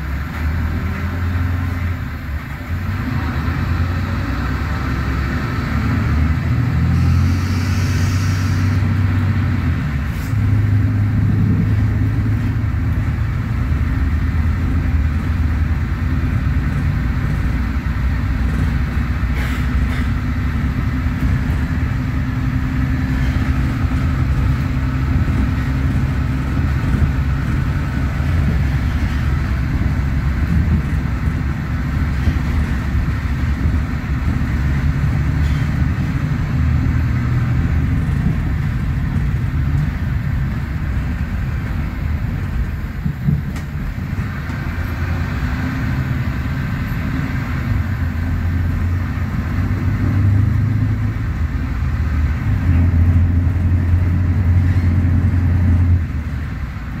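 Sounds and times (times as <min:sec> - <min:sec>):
bus diesel engine running: 0:00.0 - 0:57.0
brief hiss: 0:19.4 - 0:20.1.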